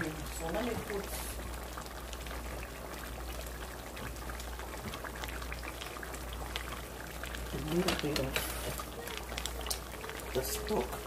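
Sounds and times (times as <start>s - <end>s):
sauce bubbling in a pot: 0.0s - 11.0s.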